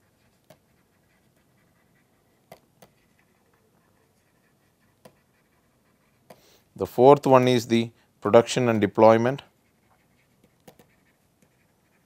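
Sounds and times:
stylus tapping a tablet: 0.4 - 0.7, 2.5 - 3.1, 10.4 - 11.6.

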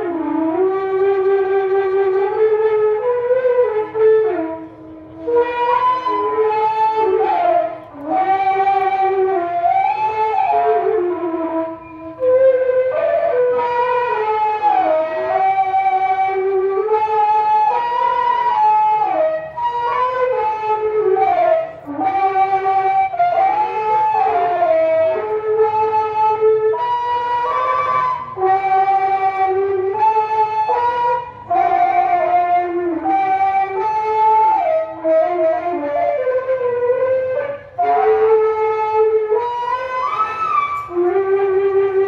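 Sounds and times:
reedy wind instrument melody: 0.0 - 42.0.

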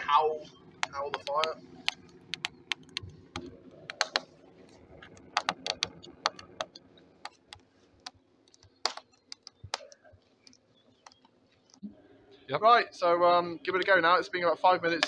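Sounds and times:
burning wood crackling and popping: 0.0 - 11.8.

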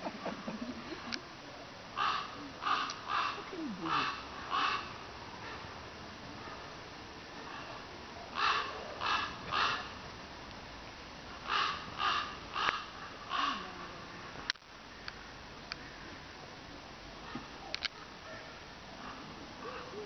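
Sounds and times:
crow cawing: 2.0 - 5.7, 8.4 - 10.0, 11.4 - 13.7.

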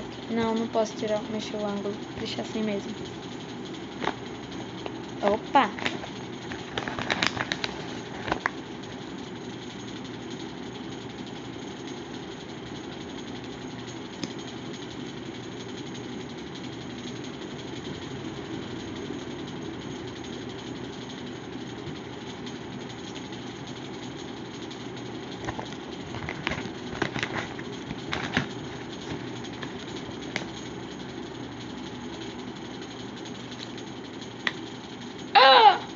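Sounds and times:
electric fan running: 0.0 - 35.9.

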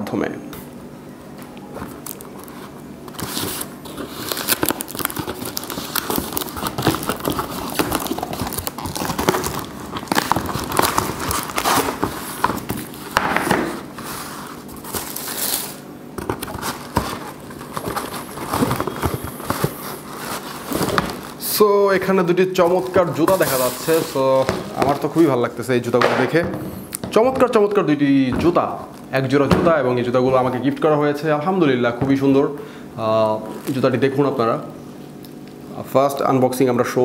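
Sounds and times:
paper and plastic crinkling: 1.8 - 26.3
tissue paper rustling: 2.4 - 15.8, 16.5 - 21.5, 22.6 - 25.4
cardboard boxes scraping and knocking: 16.2 - 21.4.

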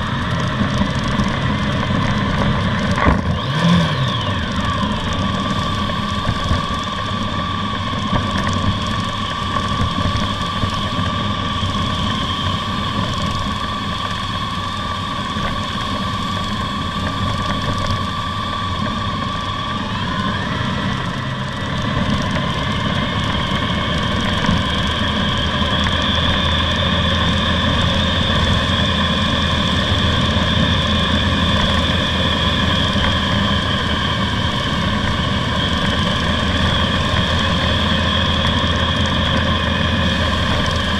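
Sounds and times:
tyre and road noise: 0.0 - 14.5
motorcycle engine running: 0.0 - 40.9.

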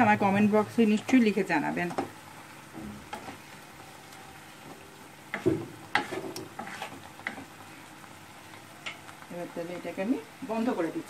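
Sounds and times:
faint sizzle: 0.0 - 11.0
utensil scraping pan: 5.3 - 7.5.

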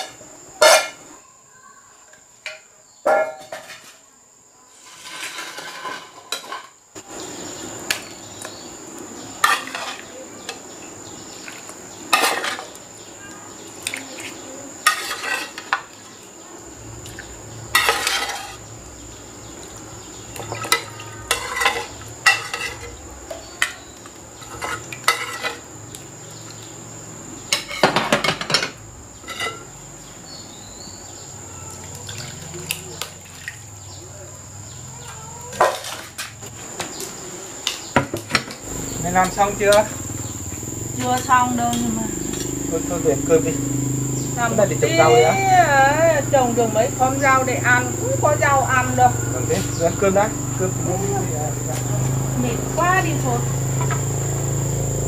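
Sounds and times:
metal ladle clinking and scraping: 14.9 - 15.7, 17.8 - 18.6, 20.5 - 23.0.

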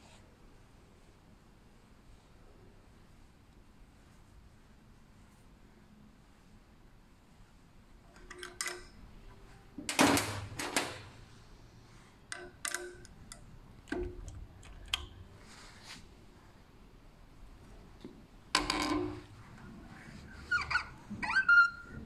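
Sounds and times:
metal clicks and taps: 8.1 - 9.0, 12.3 - 15.2.

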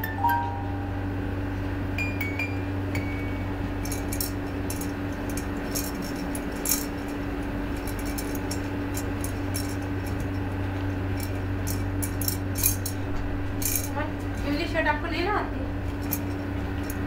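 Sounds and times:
tinkly musical toy notes: 0.0 - 1.0, 2.0 - 3.6
steady low hum: 0.0 - 17.0.

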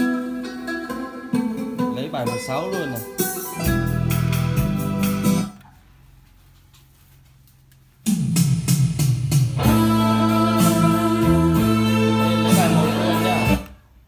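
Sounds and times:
song through speakers: 0.0 - 5.6, 8.0 - 14.0.

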